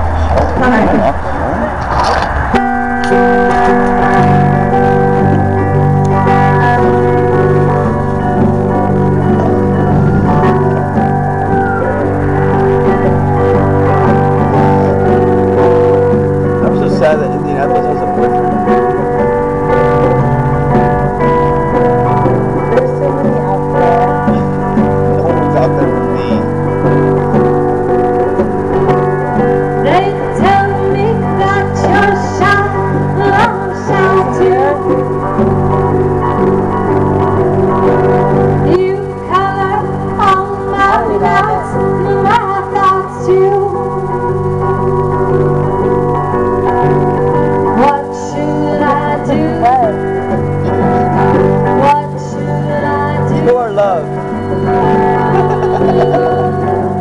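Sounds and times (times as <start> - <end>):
electric guitar: 0.0 - 57.0
sustained band chords: 2.4 - 57.0
woman singing: 6.1 - 7.2, 29.8 - 35.1, 38.6 - 44.0, 46.6 - 50.1, 50.8 - 56.9.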